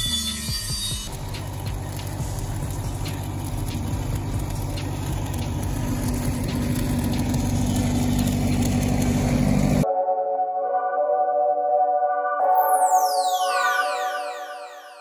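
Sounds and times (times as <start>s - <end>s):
welder engine humming: 0.0s - 9.8s
welding arc crackle: 0.0s - 9.8s.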